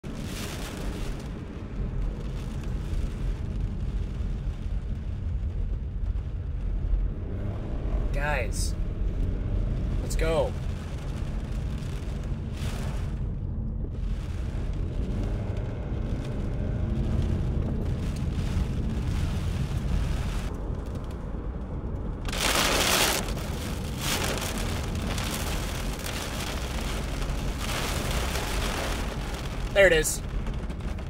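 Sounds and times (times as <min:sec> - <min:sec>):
vehicle rumble from inside cabin: 0:00.0 - 0:31.0
storm wind buffeting microphone: 0:08.8 - 0:31.0.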